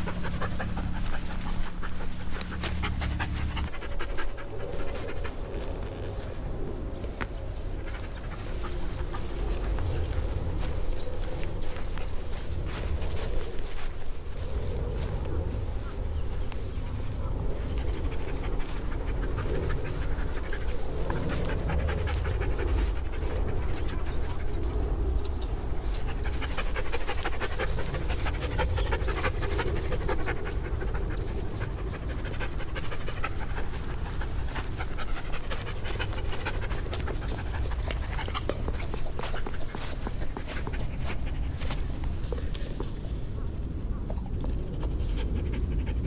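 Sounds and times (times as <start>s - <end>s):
dog panting: 0.0s - 46.0s.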